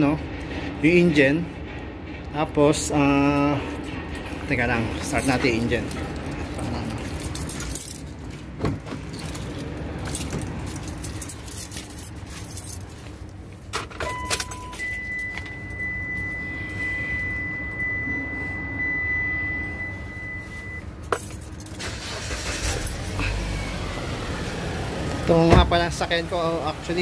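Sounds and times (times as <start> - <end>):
car keys jangling: 3.8 - 15.9, 21.0 - 23.4
car warning chime: 14.0 - 20.9.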